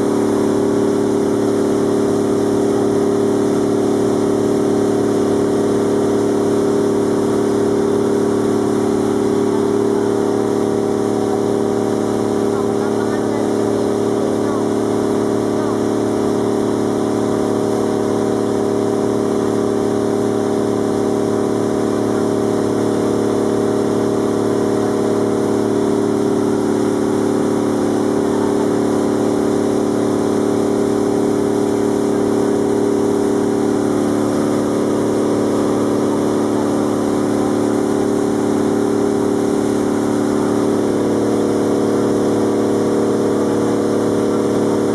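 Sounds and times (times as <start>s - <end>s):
boat engine droning: 0.0s - 44.9s.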